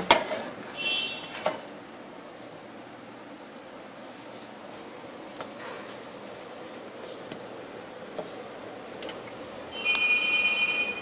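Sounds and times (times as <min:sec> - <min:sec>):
printer mechanism whine: 0:09.7 - 0:11.0.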